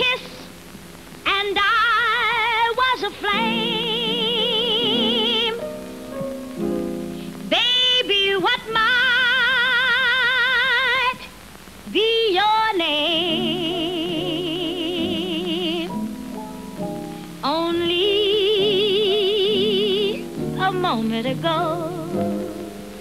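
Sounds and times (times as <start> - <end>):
woman singing jazz ballad: 0.0 - 0.6, 1.2 - 5.6, 7.4 - 16.0, 17.2 - 22.9.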